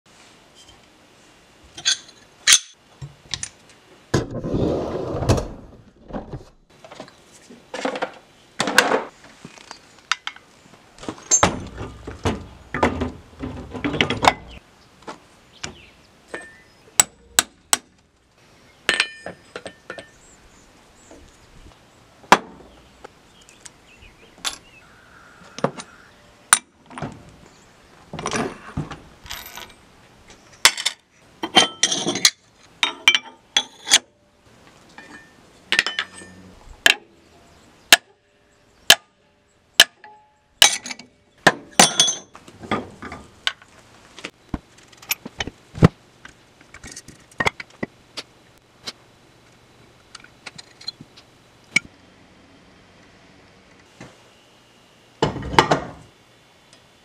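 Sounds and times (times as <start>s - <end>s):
metallic clinks and knocks: 11.1s - 14.6s, 35.0s - 37.0s, 41.8s - 42.4s.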